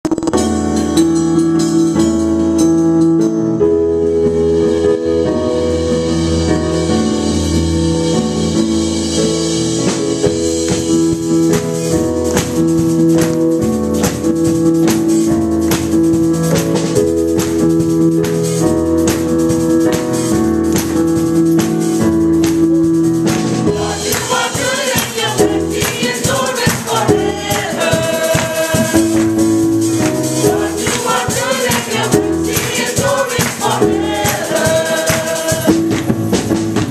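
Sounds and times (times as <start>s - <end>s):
percussion beat: 0.0s - 3.3s, 9.7s - 36.9s
keyboard chords: 0.0s - 36.9s
choir singing: 23.7s - 29.6s, 30.2s - 35.9s.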